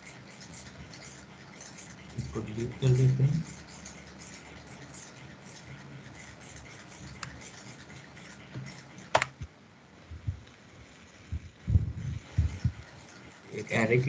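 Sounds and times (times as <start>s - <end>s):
computer mouse clicks: 8.5s - 9.5s.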